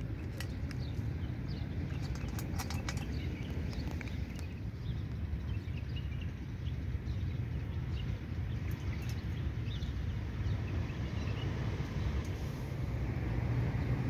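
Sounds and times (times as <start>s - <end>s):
low outdoor rumble: 0.0s - 14.0s
cat crunching kibble: 1.8s - 4.4s.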